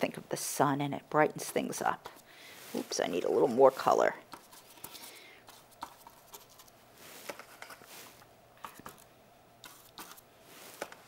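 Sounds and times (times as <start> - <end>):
paintbrush clicking and brushing: 4.2 - 11.0.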